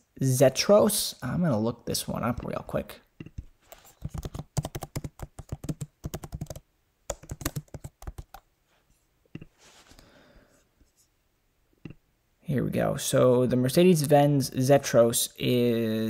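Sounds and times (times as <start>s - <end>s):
typing on computer keyboard: 4.0s - 8.4s.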